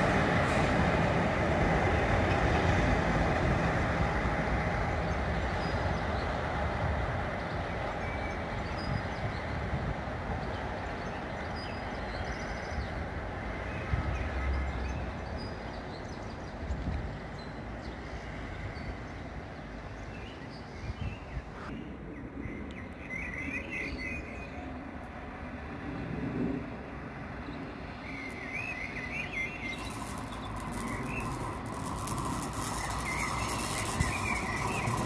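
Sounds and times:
distant locomotive rumble: 0.0s - 20.1s, 24.2s - 35.0s
bird chirping: 28.0s - 35.0s
background hum: 29.6s - 35.0s.

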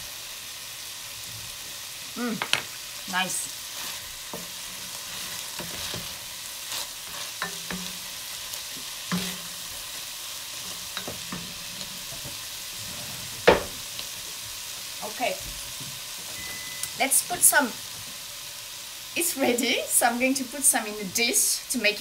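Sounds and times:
vegetables sizzling in a pot: 0.0s - 22.0s
wooden spoon scraping a pot: 3.7s - 7.9s, 10.6s - 13.5s.

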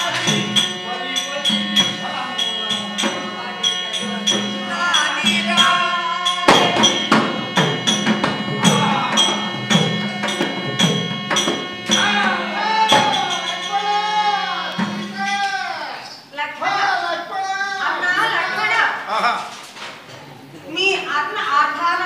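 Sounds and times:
person singing: 0.0s - 10.8s, 11.4s - 15.9s
steady held drone: 0.0s - 15.3s
sharp percussion strikes: 0.0s - 15.8s.

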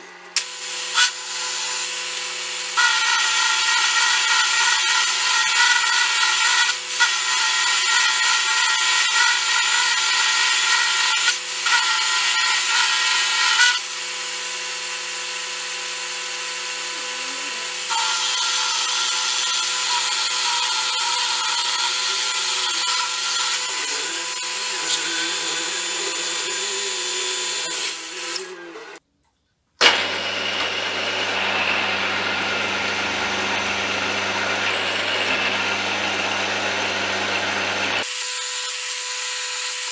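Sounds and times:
milling machine cutting steel: 0.4s - 13.9s, 15.4s - 29.0s, 29.8s - 38.7s
motor whine: 29.9s - 38.0s.

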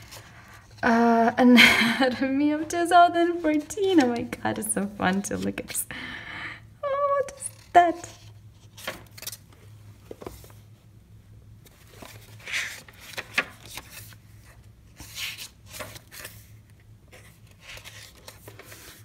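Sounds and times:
sketchbook pages flipping: 3.2s - 5.8s, 7.2s - 10.7s, 11.6s - 19.0s.

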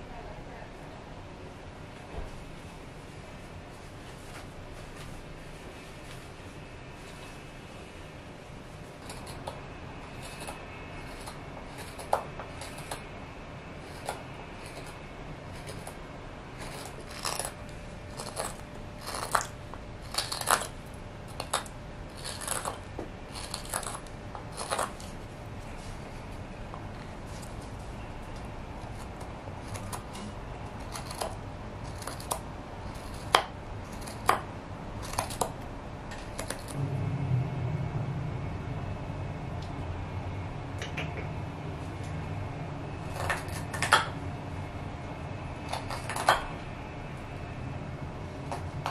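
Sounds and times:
knife scraping wood: 9.0s - 13.0s, 13.8s - 25.2s, 28.8s - 34.4s
low rumble: 36.7s - 41.6s.

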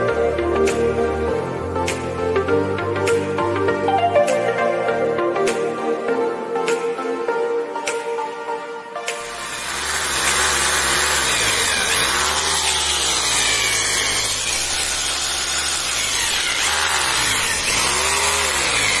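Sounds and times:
hammer drill motor: 9.1s - 19.0s.

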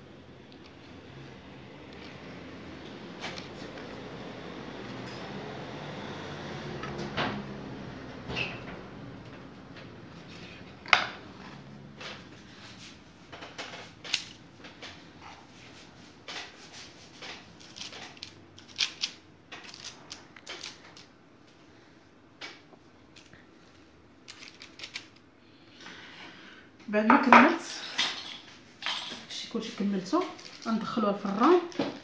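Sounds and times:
kitchen tools knocking and clicking: 27.1s - 29.3s.

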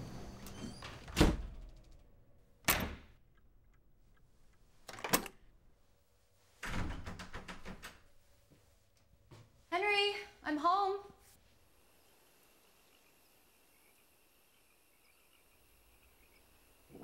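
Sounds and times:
door rattling: 6.6s - 8.1s.

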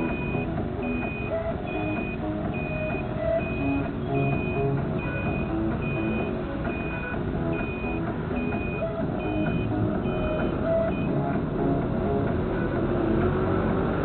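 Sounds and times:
vehicle warning beeper: 0.0s - 11.2s
engine and road noise: 0.0s - 14.0s.

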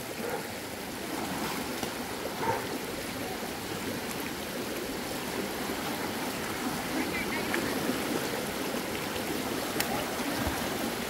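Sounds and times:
river rushing over rocks: 0.0s - 11.0s.

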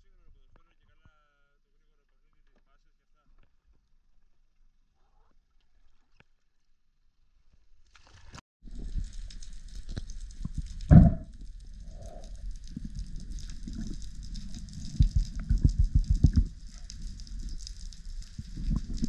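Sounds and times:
fine crackle underwater: 3.4s - 6.8s, 7.4s - 19.0s
low rumbling water noise: 8.6s - 19.0s
low thumps: 10.7s - 17.5s.

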